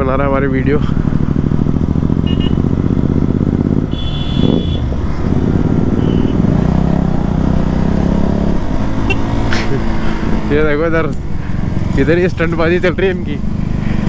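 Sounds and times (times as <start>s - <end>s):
motorcycle engine running: 0.0s - 14.0s
wind rush on microphone: 3.3s - 5.9s.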